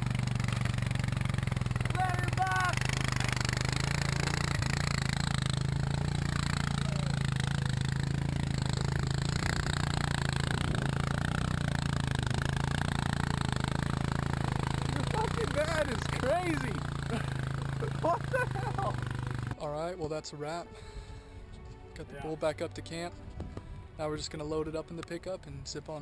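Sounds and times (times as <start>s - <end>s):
atv engine droning: 0.0s - 19.9s.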